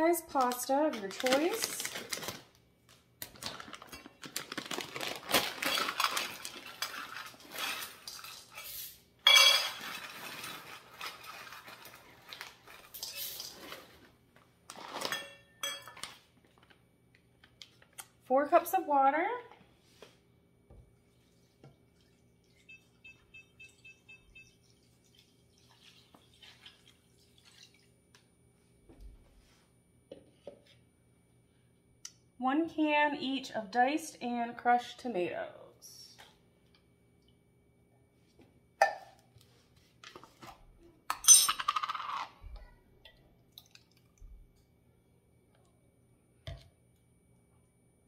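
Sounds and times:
water poured into a skillet: 24.5s - 27.9s.

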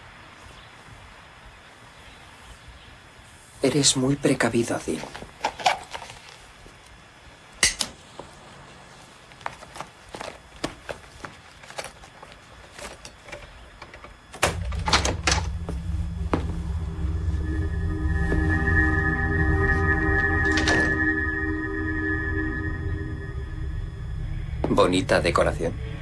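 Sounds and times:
low drone of background score: 14.4s - 26.0s.

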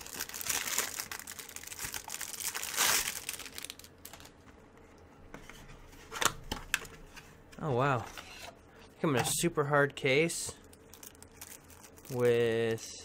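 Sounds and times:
shrink-wrap crinkling and tearing: 0.0s - 4.3s, 10.6s - 12.7s.

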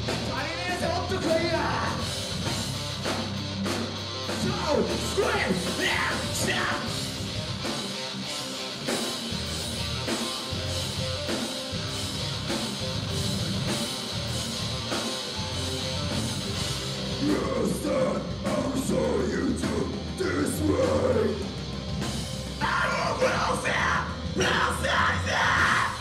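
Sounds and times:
rock band playing live: 0.0s - 26.0s
person singing: 17.1s - 21.5s, 22.6s - 26.0s.

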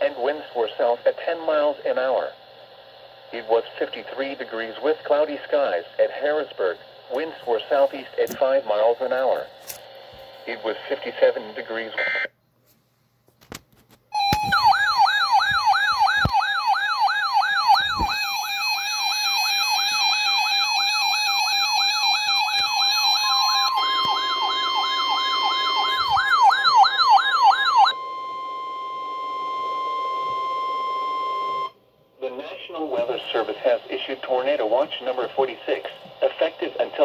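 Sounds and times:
warbling alert siren: 14.2s - 31.8s.

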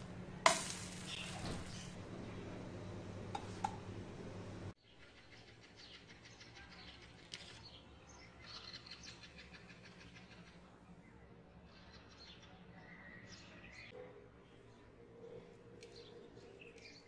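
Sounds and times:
flatbread sizzling in a hot pan: 0.4s - 1.8s.

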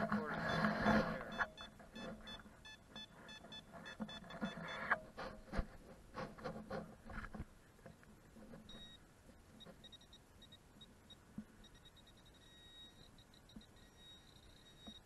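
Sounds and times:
metal detector beeping: 0.0s - 5.1s, 8.6s - 15.0s.

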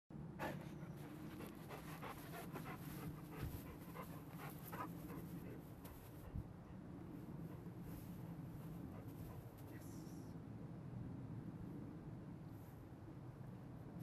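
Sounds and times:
dog panting: 0.4s - 6.5s.

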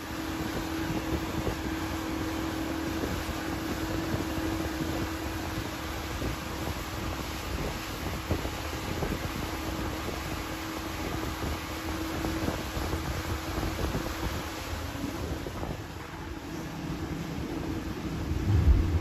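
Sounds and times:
boat wake rushing: 0.0s - 19.0s
outboard motor drone: 0.0s - 19.0s
wind buffeting microphone: 18.1s - 19.0s.

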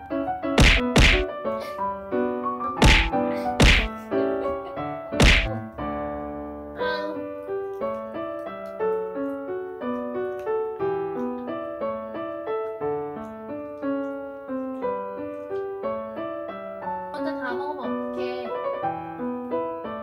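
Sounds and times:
light piano waltz: 0.0s - 20.0s
sharp thunk: 0.6s - 1.3s, 2.8s - 3.9s, 5.2s - 5.6s.

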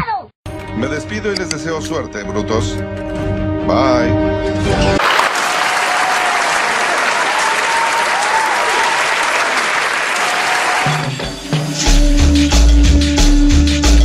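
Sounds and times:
crowd clapping: 5.0s - 11.4s.

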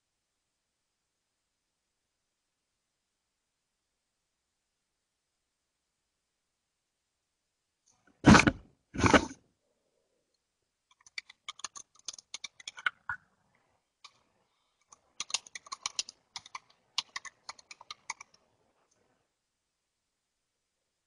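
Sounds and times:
typing on computer keyboard: 10.9s - 13.2s, 14.8s - 18.4s.

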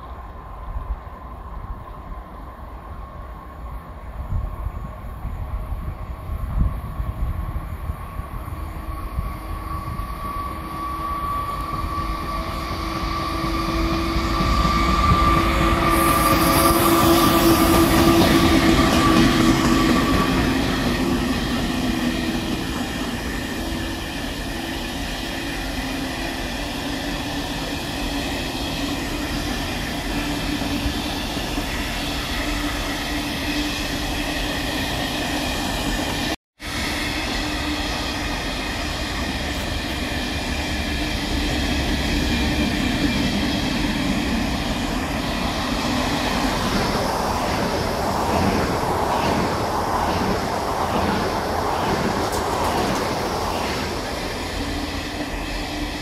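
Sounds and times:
freight train wheels rumbling on rails: 0.0s - 56.0s
locomotive whine: 5.8s - 56.0s.

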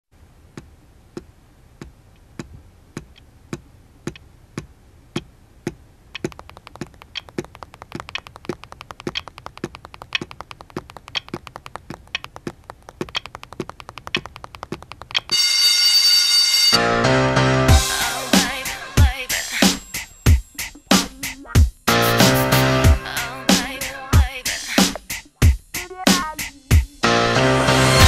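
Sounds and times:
fast uneven tapping: 0.6s - 15.3s
wall clock ticking: 1.2s - 15.4s.

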